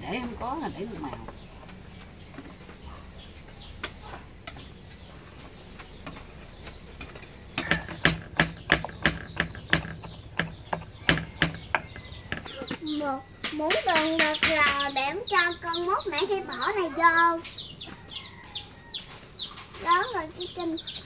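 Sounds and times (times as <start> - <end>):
knife chopping on wooden board: 7.6 - 12.6.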